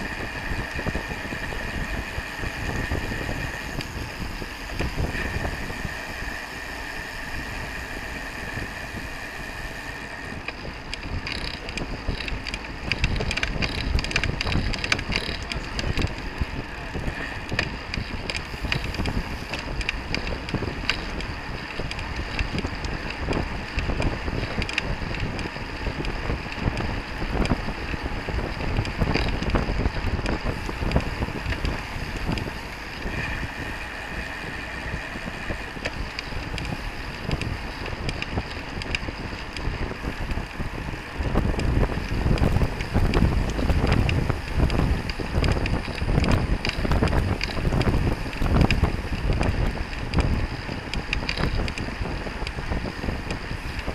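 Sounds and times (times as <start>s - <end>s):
road and tyre noise: 0.0s - 53.9s
wind buffeting microphone: 0.0s - 53.9s.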